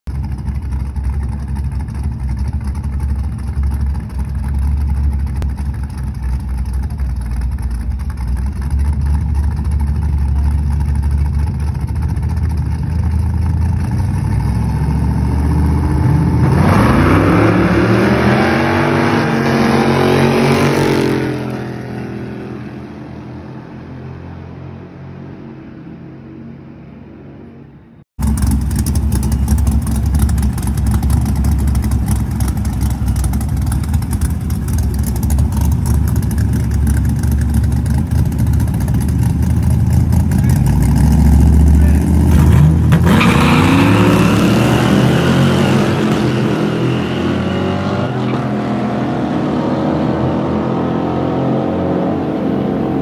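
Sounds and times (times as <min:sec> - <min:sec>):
race cars idling: 0:00.1 - 0:14.5, 0:28.2 - 0:43.1
race car engines revving: 0:00.1 - 0:53.0.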